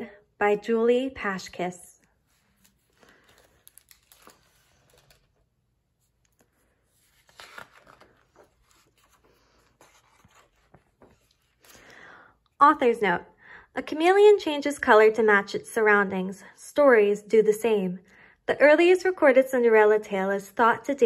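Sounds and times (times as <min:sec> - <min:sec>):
book pages rustling: 0:02.0 - 0:11.9.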